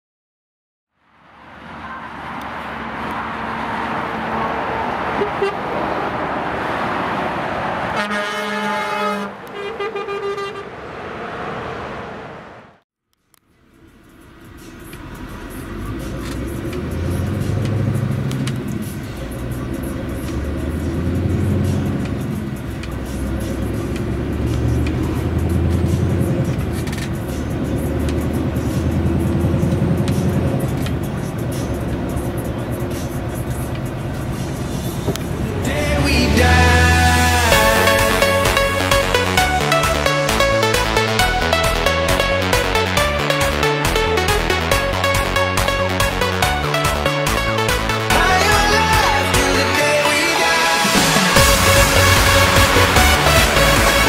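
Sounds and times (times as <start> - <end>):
motorway traffic noise: 1.0 - 54.0
truck air horn: 5.1 - 5.7, 7.9 - 10.8
diesel truck engine running: 13.6 - 54.0.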